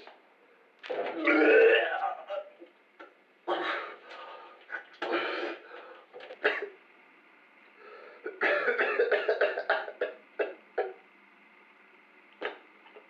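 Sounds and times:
man coughing: 3.5 - 4.0, 6.4 - 6.8, 8.3 - 11.0.

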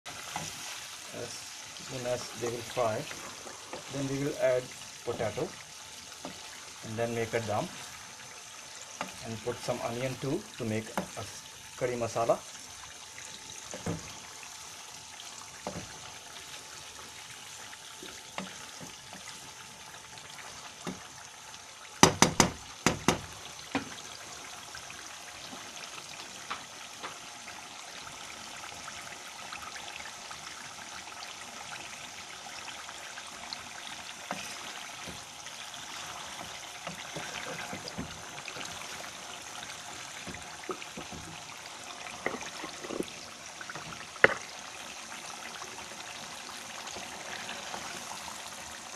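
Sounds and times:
chicken livers sizzling in a pan: 0.1 - 48.9
sharp knocks: 22.0 - 23.2.

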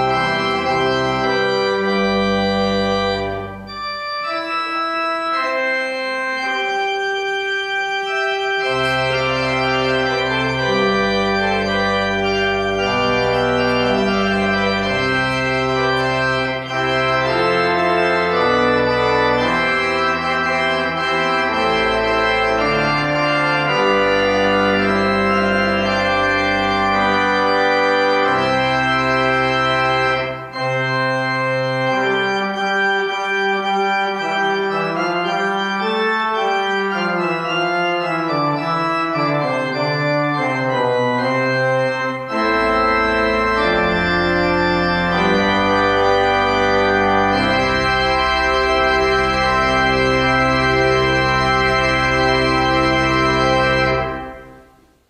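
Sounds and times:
organ music: 0.0 - 55.0.

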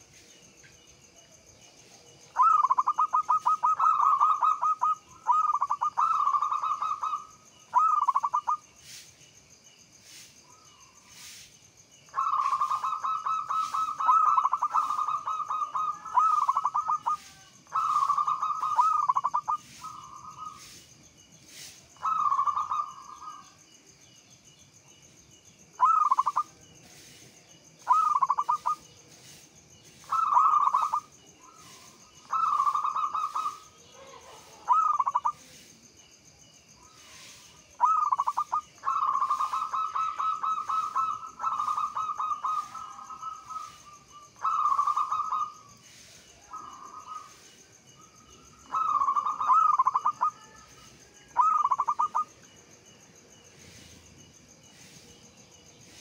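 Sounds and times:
dove cooing: 2.3 - 8.6, 12.1 - 20.8, 22.0 - 23.6, 25.8 - 26.6, 27.8 - 28.8, 30.0 - 35.5, 37.0 - 45.8, 48.6 - 52.4.

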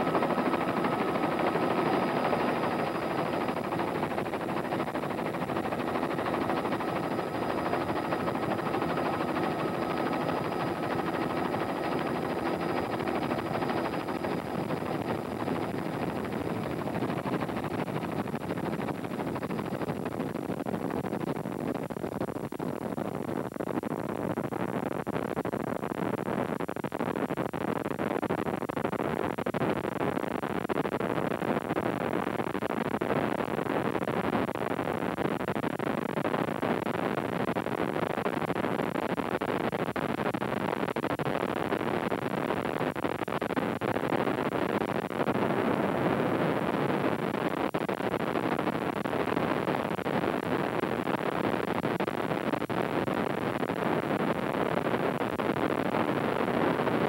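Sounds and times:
helicopter engine and rotor: 0.0 - 20.0.

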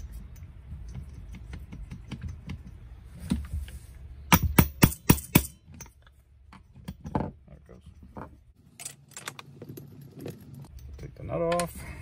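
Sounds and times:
hammer striking metal engine: 4.3 - 5.9.

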